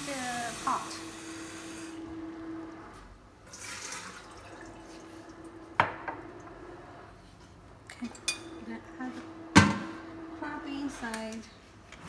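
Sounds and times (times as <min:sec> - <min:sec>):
faucet running water into sink: 0:00.0 - 0:01.8, 0:03.5 - 0:05.6
water pouring splash: 0:03.5 - 0:05.0.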